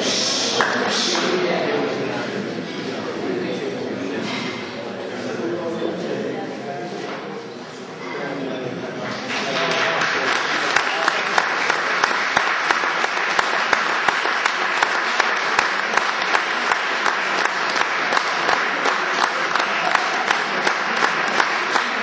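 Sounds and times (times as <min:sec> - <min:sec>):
audience applauding: 0:09.0 - 0:22.0.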